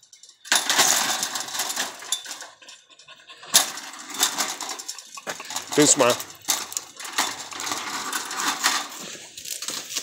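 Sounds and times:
chain-link fence rattling: 0:00.0 - 0:10.0.

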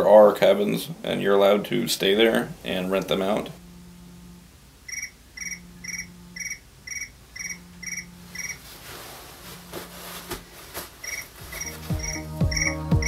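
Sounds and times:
cricket chirping: 0:04.8 - 0:08.6, 0:11.0 - 0:12.8.

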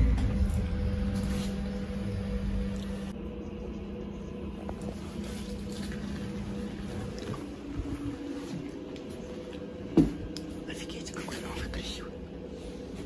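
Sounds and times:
faint hum and low rumble: 0:00.0 - 0:13.0
trolleybus electric drive hum: 0:00.0 - 0:13.0.

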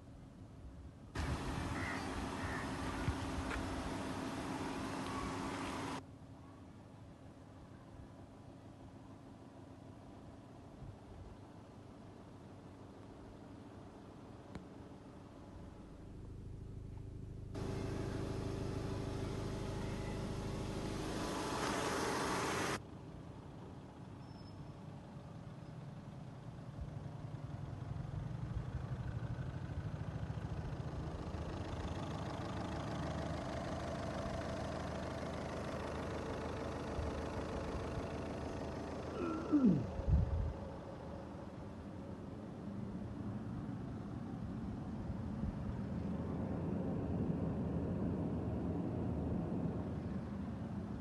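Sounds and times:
car engine idling: 0:01.2 - 0:06.0, 0:13.4 - 0:24.1, 0:25.0 - 0:45.0.

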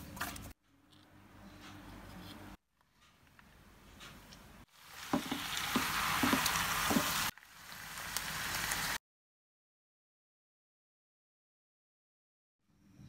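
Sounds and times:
food stir-frying in a pan: 0:04.7 - 0:09.0
wooden spatula knocking pan: 0:05.1 - 0:07.2.

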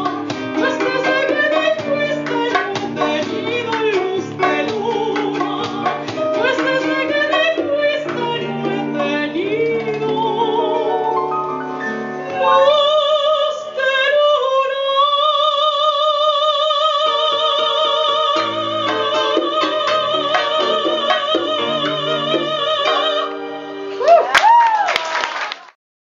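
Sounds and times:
acoustic guitar: 0:00.0 - 0:14.2, 0:16.0 - 0:24.0
soprano singing: 0:00.0 - 0:24.3.

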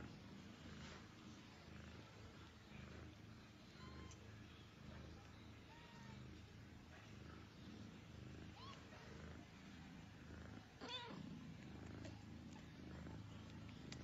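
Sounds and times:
cat purring: 0:00.0 - 0:14.0
faint high squeak: 0:03.7 - 0:04.3.

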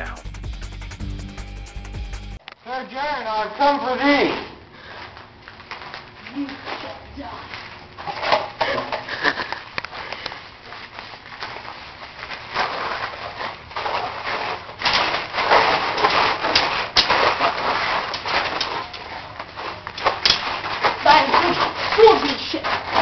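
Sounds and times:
noisy scuffle: 0:04.2 - 0:23.0
toy swords clacking: 0:14.8 - 0:19.2, 0:19.9 - 0:23.0.

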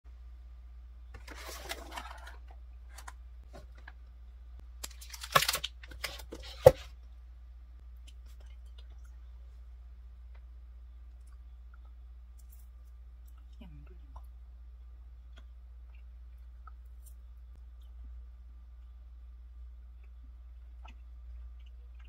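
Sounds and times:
steady low hum: 0:00.1 - 0:22.0
paper box rustling: 0:01.2 - 0:03.8
plastic snack packet crinkling: 0:04.8 - 0:06.4.

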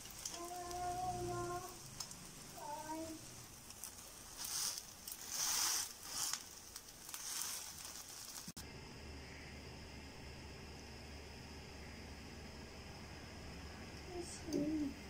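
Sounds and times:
omelette sizzling in a pan: 0:00.0 - 0:15.0
low steady hum: 0:08.6 - 0:15.0.

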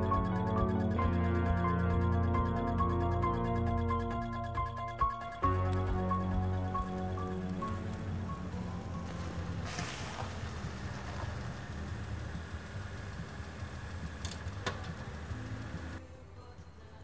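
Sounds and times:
car engine running: 0:05.4 - 0:16.0
tyre and road noise: 0:06.4 - 0:16.0.

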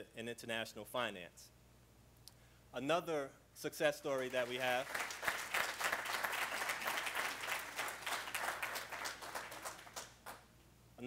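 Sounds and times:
audience applauding: 0:04.2 - 0:10.4.

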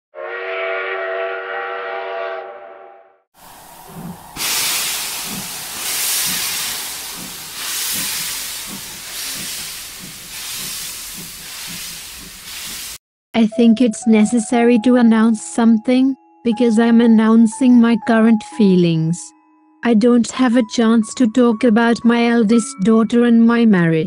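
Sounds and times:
steam whistle chord: 0:00.1 - 0:09.9
locomotive exhaust chuffs: 0:03.4 - 0:13.0
steam hissing: 0:03.4 - 0:13.0.

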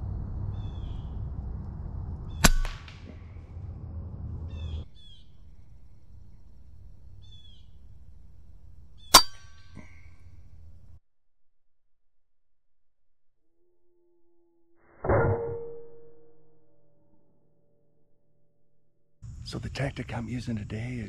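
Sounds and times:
air rifle shots: 0:02.4 - 0:03.2.

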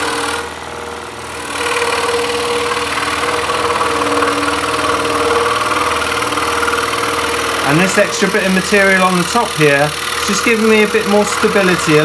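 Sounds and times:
scroll saw cutting wood: 0:00.0 - 0:12.0.

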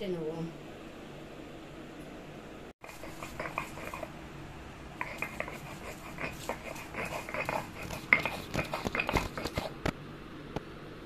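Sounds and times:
stone scraping and knocking on stone: 0:05.0 - 0:09.8.

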